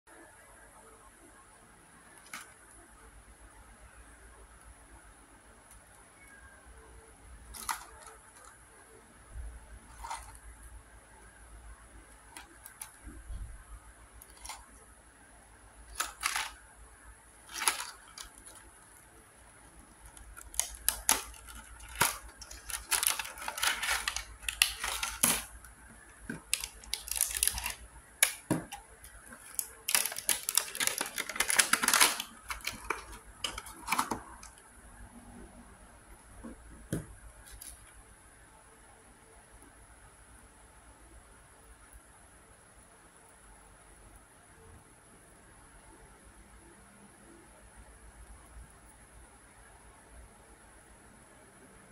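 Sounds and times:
plastic tray crackling and clicking: 0:02.1 - 0:02.7, 0:07.5 - 0:08.6, 0:09.9 - 0:10.5, 0:12.1 - 0:13.2, 0:14.2 - 0:14.8, 0:15.9 - 0:16.6, 0:17.4 - 0:19.0, 0:19.8 - 0:34.6.

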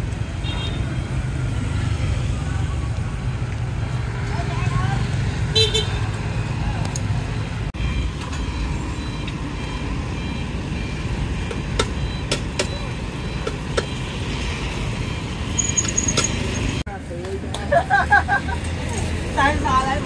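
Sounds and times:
road traffic rumble: 0:00.0 - 0:20.0
sharp clicks and ticks: 0:11.4 - 0:14.0.

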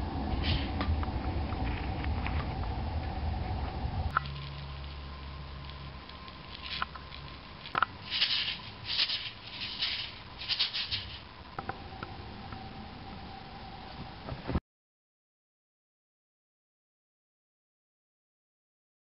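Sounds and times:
faint steady hum: 0:00.0 - 0:14.6
maracas rattling: 0:04.2 - 0:11.3.

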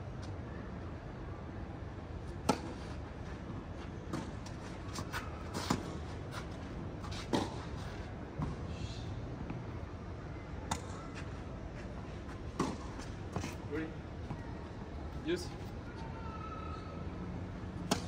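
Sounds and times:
tennis ball struck by rackets: 0:02.4 - 0:02.8, 0:07.2 - 0:07.7, 0:10.7 - 0:11.0, 0:12.6 - 0:13.6.

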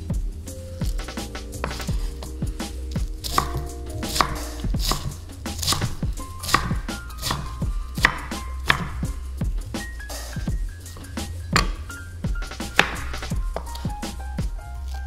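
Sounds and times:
knife chopping on cutting board: 0:01.6 - 0:02.3, 0:03.2 - 0:09.0, 0:11.6 - 0:11.9, 0:12.8 - 0:13.8.

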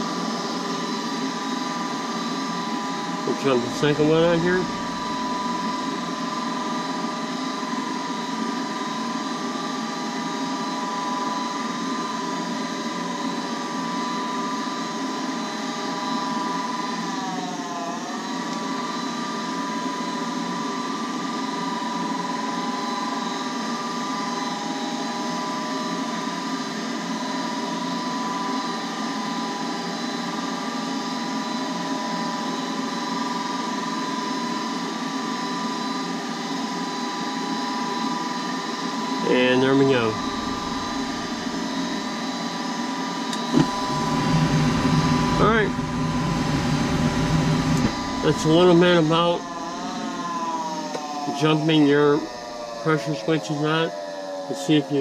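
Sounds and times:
furnace inducer motor whining: 0:03.1 - 0:06.0, 0:39.3 - 0:42.1, 0:43.3 - 0:53.4.

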